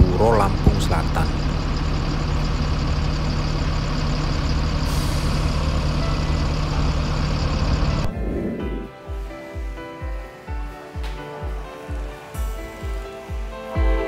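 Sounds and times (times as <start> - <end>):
bus diesel engine running: 0.0 - 8.8
music: 6.0 - 14.0.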